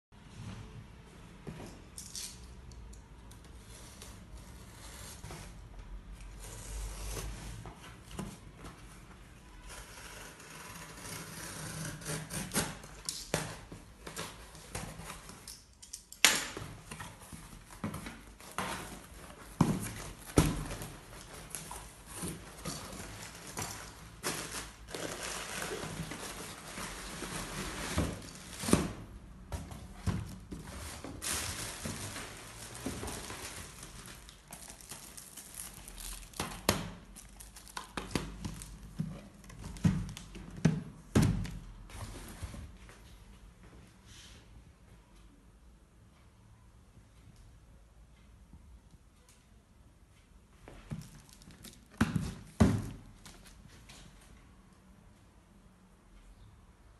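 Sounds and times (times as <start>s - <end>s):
packaging rustling: 17.5s - 29.0s, 30.2s - 39.8s.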